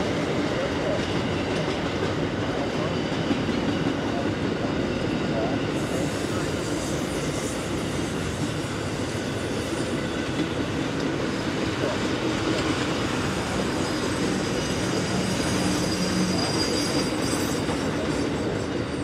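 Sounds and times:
train wheels rumbling on rails: 0.0 - 19.0
high wheel squeal: 11.3 - 19.0.

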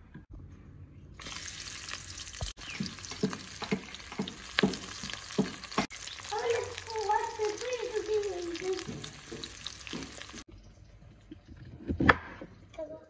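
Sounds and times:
onions sizzling in hot oil: 1.2 - 10.5
spatula knocking against pan: 2.7 - 5.9, 8.8 - 10.4.

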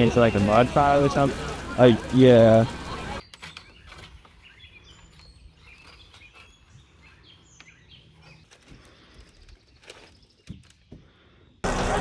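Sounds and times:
faint bird chirps: 3.2 - 11.6.

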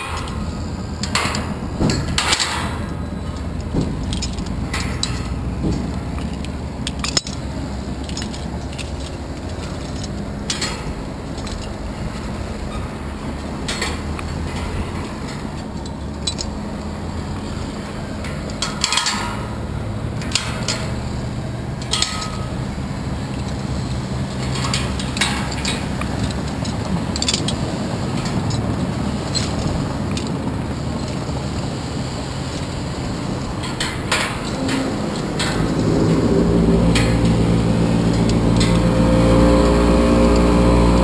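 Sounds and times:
metallic clinks of carabiners: 0.0 - 31.7
wind rushing over microphone: 19.3 - 41.0.

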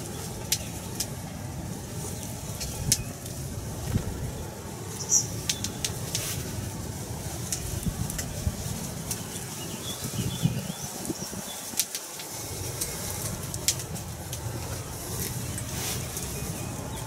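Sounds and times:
faint distant birdsong: 0.0 - 17.0
wind on microphone: 0.0 - 17.0
sharp ticks: 5.4 - 6.3, 7.4 - 8.4.

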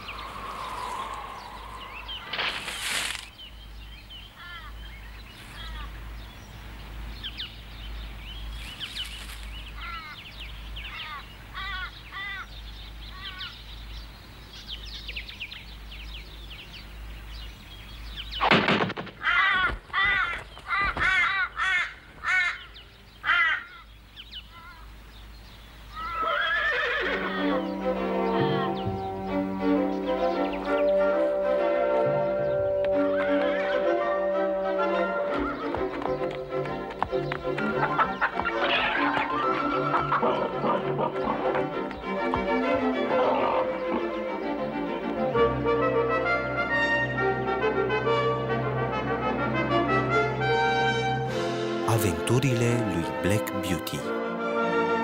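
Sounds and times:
cartoon crows cawing: 4.4 - 4.8, 11.0 - 12.5, 19.2 - 23.9, 26.0 - 27.7
music: 27.0 - 55.0.

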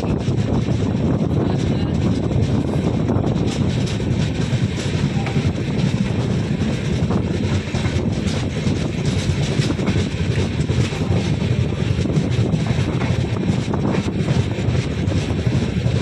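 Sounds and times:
train wheels rumbling on rails: 0.0 - 16.0
wind buffeting microphone: 0.0 - 16.0
sharp rail clicks: 0.2 - 16.0.

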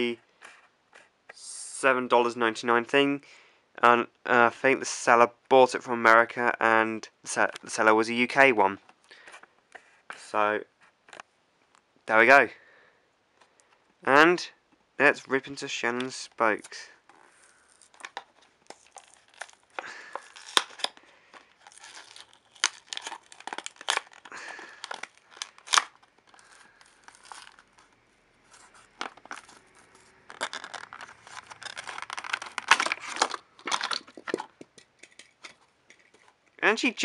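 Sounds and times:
plastic packaging tearing and crinkling: 16.7 - 36.4.

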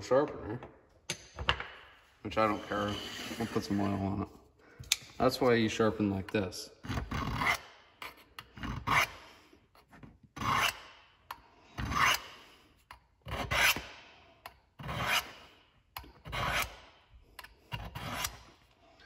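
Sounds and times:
knife scraping on sharpener rods: 2.4 - 4.0, 17.4 - 18.6.

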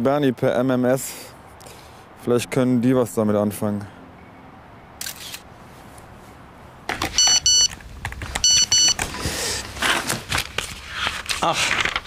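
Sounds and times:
phone message alert beeps: 7.2 - 7.7, 8.4 - 9.0.

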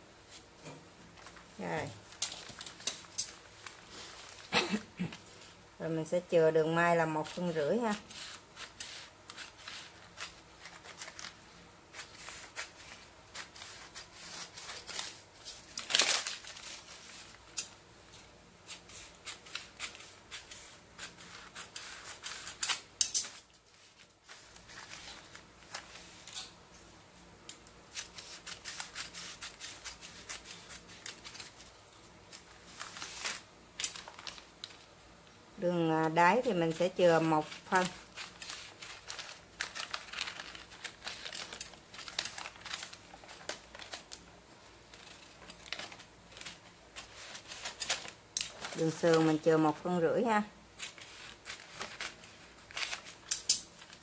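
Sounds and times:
scissors snipping paper: 7.2 - 15.2, 18.7 - 23.5, 27.9 - 31.6, 36.0 - 44.3.

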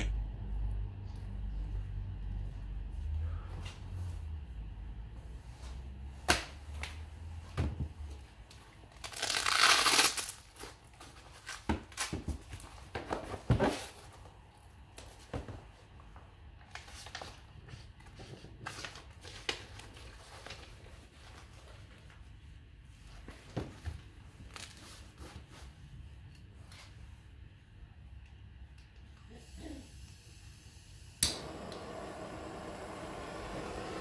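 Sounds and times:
foil fabric and paper crinkling: 8.9 - 12.7.

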